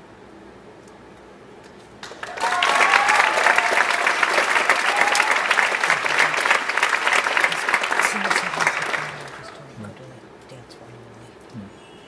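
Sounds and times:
audience applauding: 2.0 - 9.9
cheers and whoops: 2.1 - 9.6.

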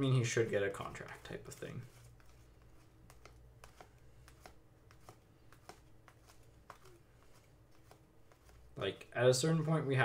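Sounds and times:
cards being flicked: 2.0 - 9.9.

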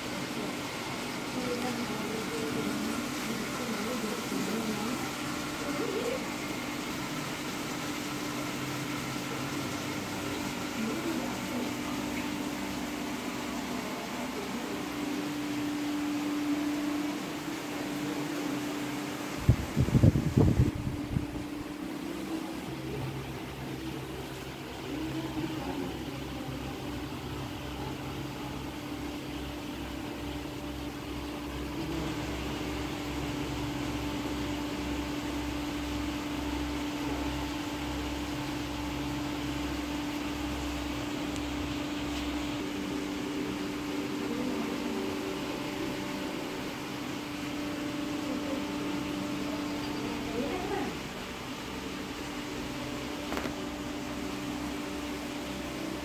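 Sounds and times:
mechanical hum with pitched tone: 0.0 - 56.0.

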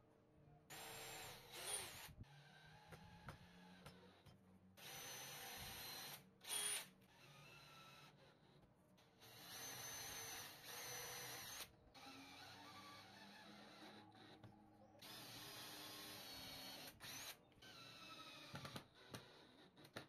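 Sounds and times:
cordless drill whine: 0.7 - 3.6, 4.8 - 8.2, 9.2 - 14.3, 15.0 - 19.5.

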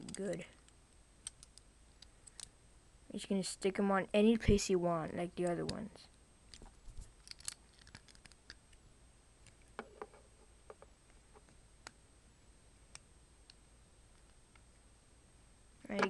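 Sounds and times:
plastic bricks clicking together: 6.5 - 8.6.

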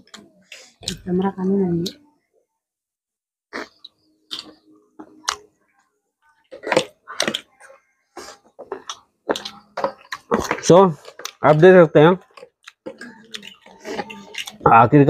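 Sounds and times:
chewing and lip smacks: 3.5 - 5.5, 6.5 - 11.6, 12.2 - 14.6.

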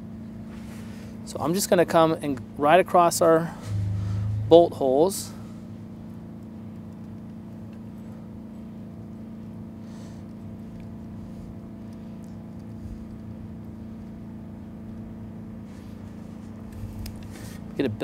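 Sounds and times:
motor humming steadily: 0.0 - 18.0.

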